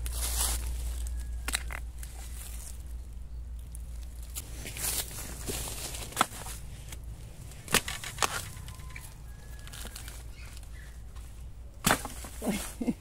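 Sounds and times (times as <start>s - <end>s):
knocks and snaps in bamboo: 0.0s - 2.8s, 3.7s - 7.0s, 7.6s - 12.6s.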